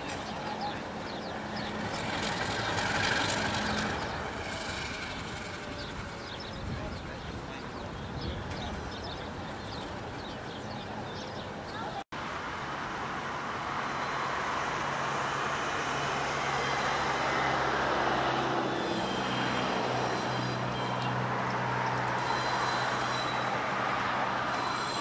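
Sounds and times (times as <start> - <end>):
distant diesel locomotive drone: 0.0 - 25.0
wind and road noise hiss: 0.0 - 25.0
train wheels squealing: 0.1 - 6.8, 16.4 - 25.0.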